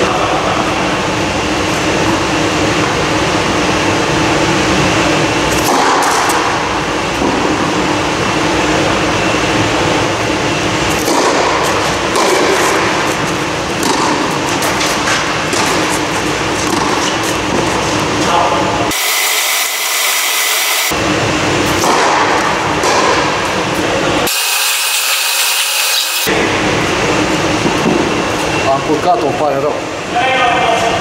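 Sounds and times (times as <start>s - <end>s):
loud blower hum: 0.0s - 29.0s
tennis balls bouncing and struck: 11.0s - 12.9s, 13.7s - 16.0s, 16.6s - 17.7s, 21.7s - 23.5s.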